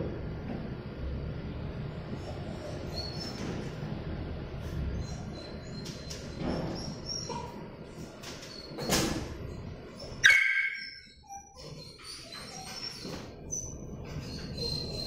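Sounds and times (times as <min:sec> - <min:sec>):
small dog yipping: 0:10.2 - 0:13.1.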